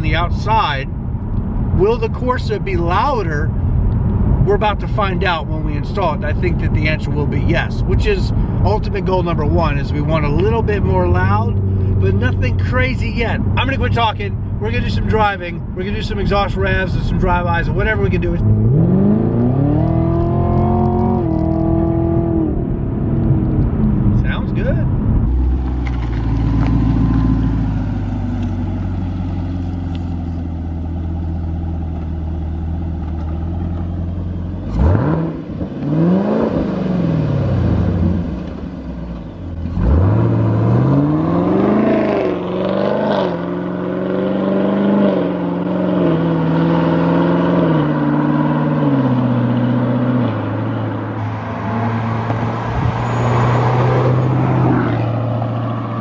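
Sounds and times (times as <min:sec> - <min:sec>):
car engine idling and revving: 0:00.0 - 0:56.0.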